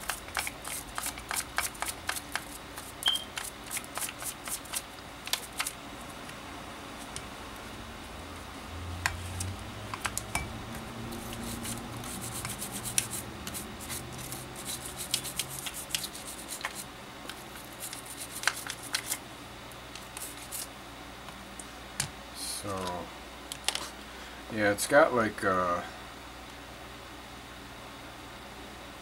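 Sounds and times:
toothbrush scrubbing: 0:00.0 - 0:05.8, 0:11.1 - 0:19.2, 0:20.1 - 0:20.7.

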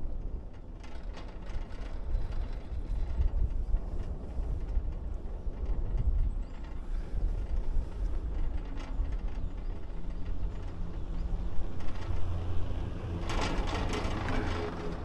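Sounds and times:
chairlift low rumble: 0:00.0 - 0:15.0
chairlift grip rattling over sheaves: 0:06.8 - 0:15.0.

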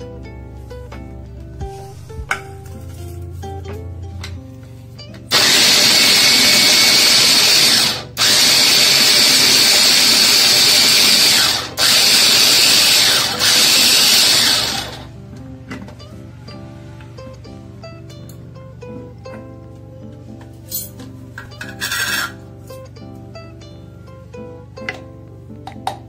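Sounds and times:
vegetable chopper motor whirring: 0:05.3 - 0:15.1.

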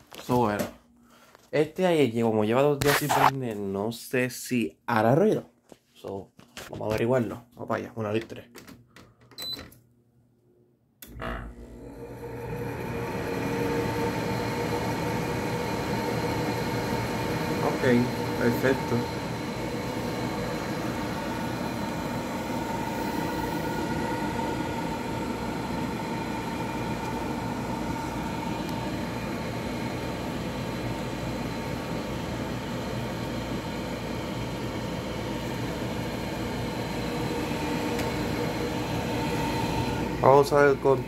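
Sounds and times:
air conditioner fan humming: 0:11.0 - 0:41.0.

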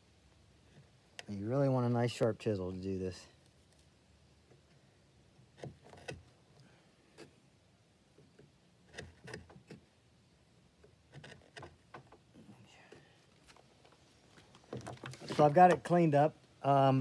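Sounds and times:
chisel scraping wood: 0:05.4 - 0:06.4, 0:08.8 - 0:09.9, 0:10.8 - 0:13.6, 0:14.6 - 0:15.9.

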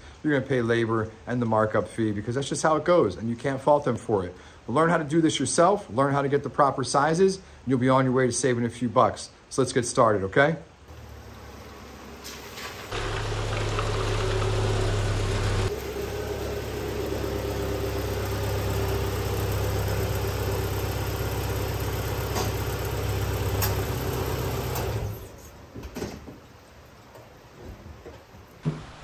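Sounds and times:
car engine running at low speed: 0:10.9 - 0:25.3.

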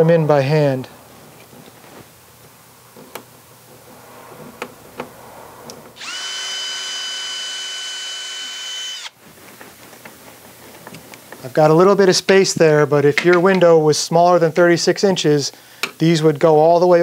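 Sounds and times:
cordless drill motor whine: 0:06.0 - 0:09.2.

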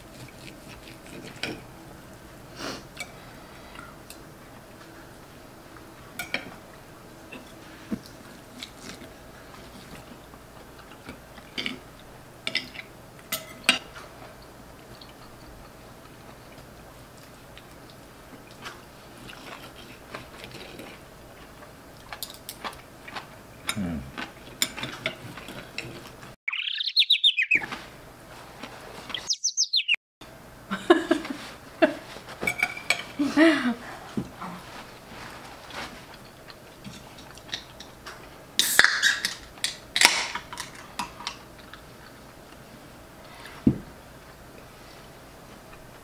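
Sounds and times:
cutlery scraping on plates: 0:00.2 - 0:01.6, 0:12.5 - 0:14.0, 0:24.6 - 0:26.1, 0:32.4 - 0:33.2
short high chirps: 0:26.5 - 0:27.7, 0:29.2 - 0:30.0.

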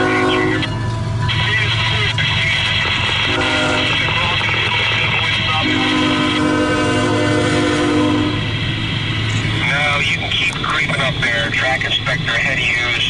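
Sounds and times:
locomotive horn blast: 0:00.0 - 0:00.8, 0:01.8 - 0:04.4, 0:05.0 - 0:08.6.

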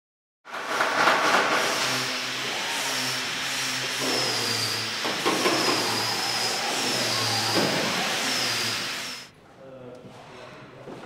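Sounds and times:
power tool whine on metal: 0:01.3 - 0:09.3.

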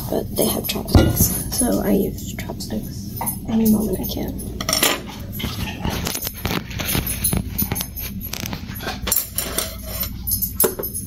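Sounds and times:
utensils clicking and clinking: 0:00.4 - 0:11.0.

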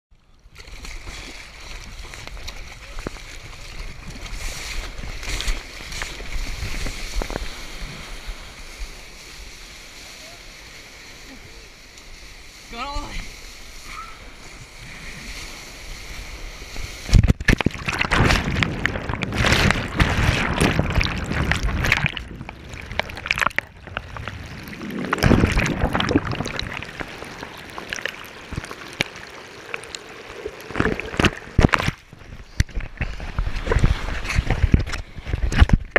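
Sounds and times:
water lapping: 0:00.7 - 0:35.7
ocean surf splashing: 0:02.8 - 0:32.4.

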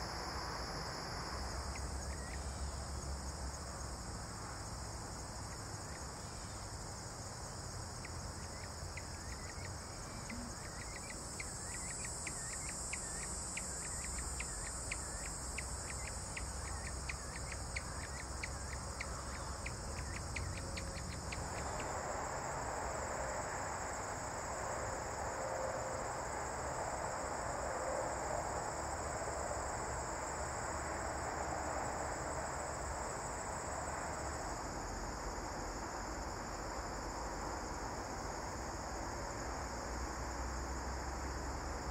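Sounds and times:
crickets shrilling: 0:06.4 - 0:24.4.

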